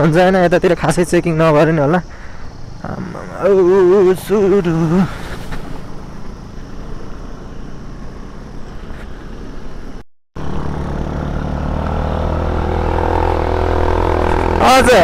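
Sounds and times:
road rumble: 0.0 - 15.0
scooter engine running: 3.5 - 8.8, 10.4 - 15.0.

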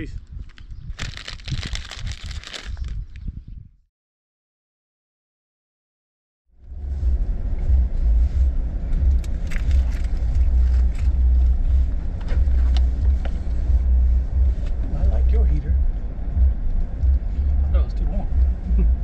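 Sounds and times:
faint clicks and rustles: 0.4 - 3.2, 7.0 - 14.9
car road and engine rumble: 6.6 - 19.0.

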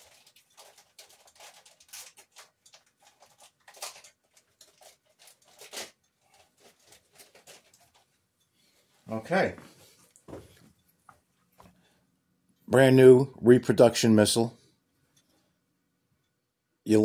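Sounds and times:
packaging crackles: 0.0 - 8.0
packaging rustling: 0.0 - 8.2.

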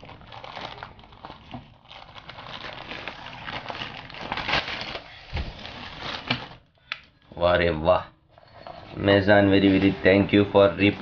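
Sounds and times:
nylon bag rustling: 0.0 - 6.6
plastic wrapping crinkling: 0.0 - 6.8.

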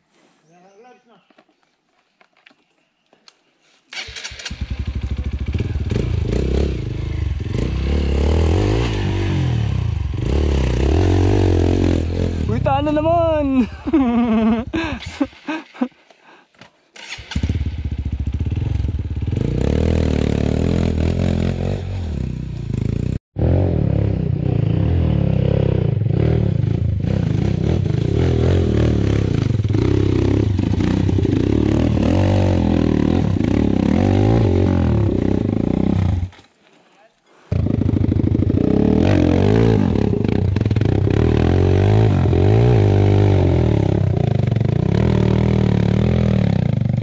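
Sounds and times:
dirt bike engine labouring: 4.0 - 15.7, 17.0 - 36.4, 37.5 - 47.0.

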